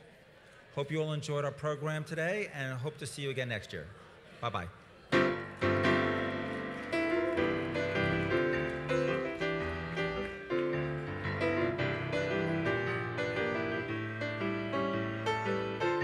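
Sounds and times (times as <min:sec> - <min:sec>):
piano chords: 0:05.1 - 0:16.0.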